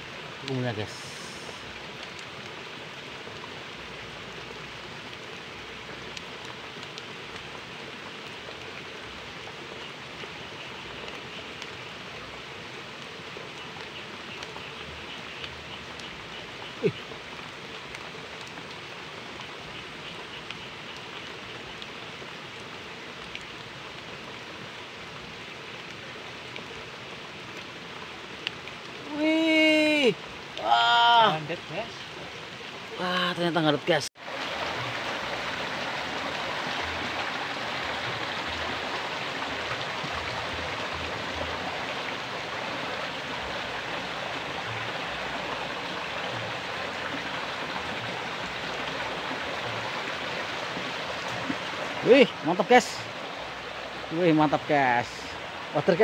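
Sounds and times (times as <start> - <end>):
stream trickling and splashing: 0.0 - 56.0
faint ticks in water: 13.0 - 24.1.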